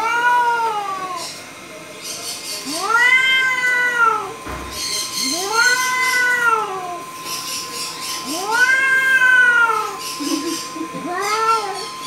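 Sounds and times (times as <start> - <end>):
cat yowling: 0.0 - 1.3, 2.6 - 4.4, 5.1 - 7.1, 8.2 - 12.0.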